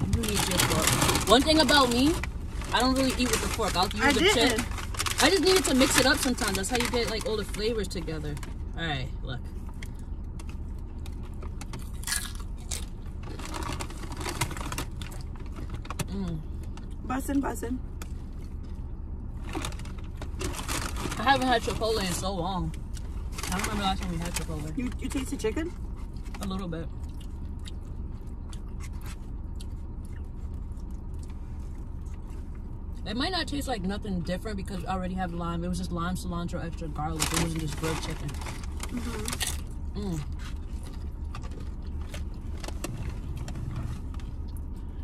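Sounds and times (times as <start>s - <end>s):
steady low hum: 0.0s - 45.0s
crunchy chewing of chips: 9.5s - 17.0s, 25.8s - 33.0s, 37.1s - 45.0s
person chewing: 9.7s - 13.7s, 27.0s - 32.8s.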